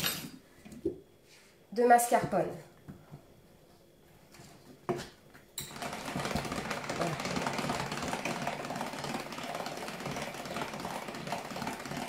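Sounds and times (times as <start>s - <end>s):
hand-cranked mixer whirring and rattling: 5.6s - 12.0s.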